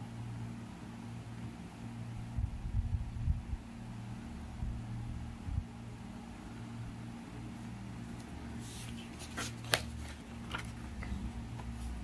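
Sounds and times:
low hum: 0.0 - 9.4
paper rustling: 8.1 - 12.0.

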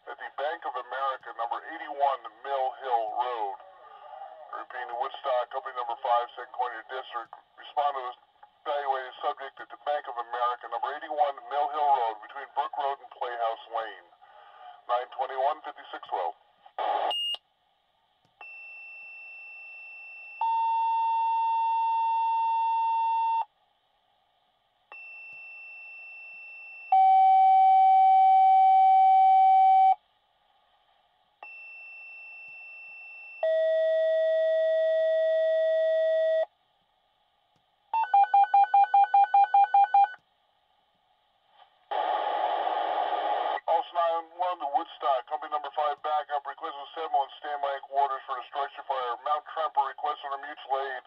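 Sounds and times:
dispatcher radio voice: 0.0 - 14.1, 14.8 - 16.4, 43.6 - 51.0
two-tone radio paging tones: 38.0 - 40.2.

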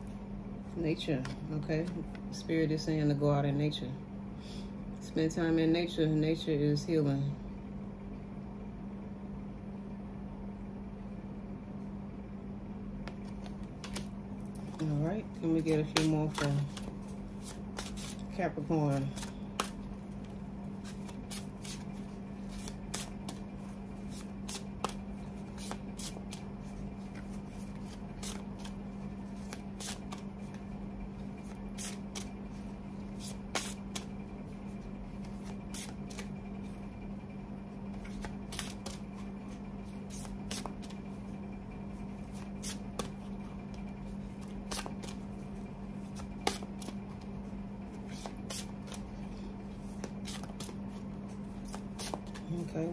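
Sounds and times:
cards being shuffled: 13.0 - 36.7, 37.9 - 41.1, 42.2 - 43.3, 44.2 - 45.4, 46.0 - 47.3, 47.9 - 52.8.

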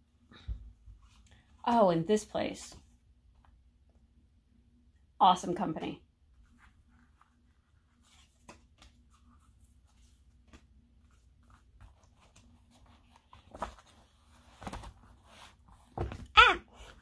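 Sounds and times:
paper rustling: 6.4 - 17.0.

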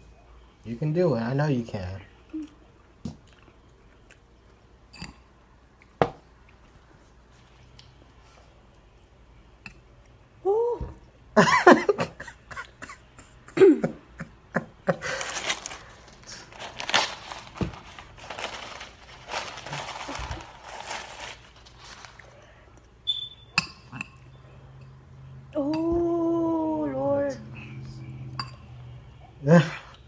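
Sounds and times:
person coughing: 12.8 - 14.0.

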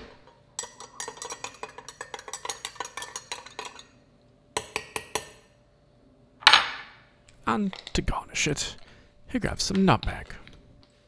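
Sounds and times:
spoon clinking against glass: 0.6 - 4.0.

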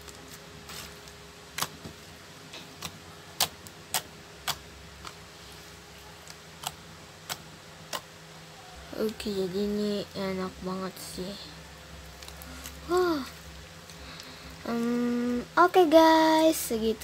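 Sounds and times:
slime clicking and popping: 6.6 - 8.1.

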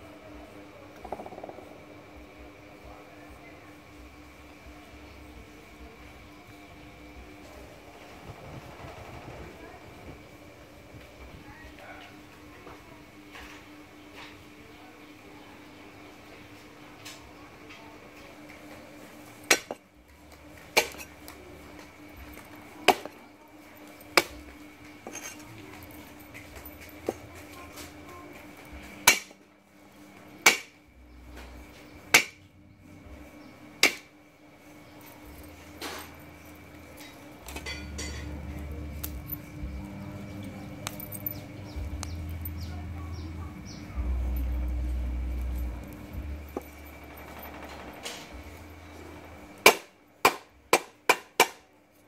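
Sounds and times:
cleaver chopping on wooden board: 22.9 - 23.1, 30.5 - 30.7, 32.2 - 32.4, 33.8 - 34.1, 49.7 - 51.6
low rumble: 38.2 - 49.5
small bird chirping: 39.6 - 44.4.

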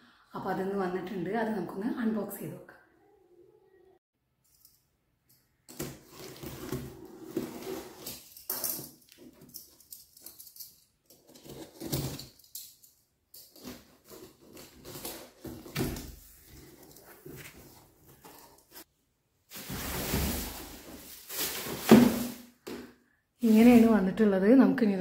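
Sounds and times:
tape and cardboard rustling: 5.7 - 10.4, 13.4 - 18.9, 19.5 - 22.8.

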